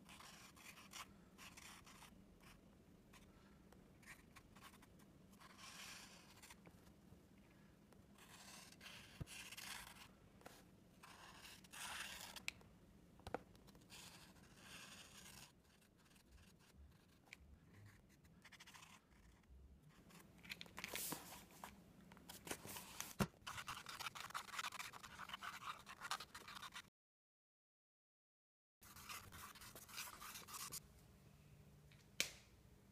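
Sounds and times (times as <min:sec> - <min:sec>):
marker scratching on paper: 0:08.2 - 0:10.1, 0:11.0 - 0:12.4, 0:13.9 - 0:17.2, 0:17.8 - 0:20.2, 0:22.6 - 0:26.9, 0:28.8 - 0:30.8.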